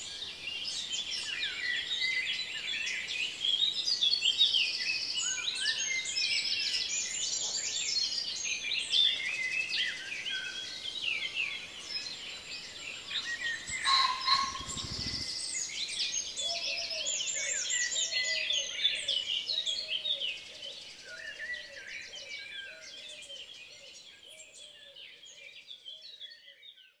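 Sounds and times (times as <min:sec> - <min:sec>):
small birds chirping and trilling: 0:00.0 - 0:27.0
low bird call repeating: 0:13.8 - 0:14.8.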